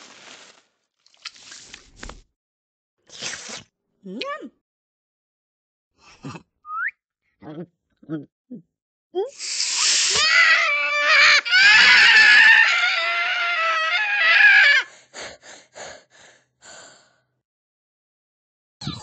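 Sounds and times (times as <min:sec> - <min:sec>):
high-pitched cartoon voice squealing: 0:09.3 - 0:14.8.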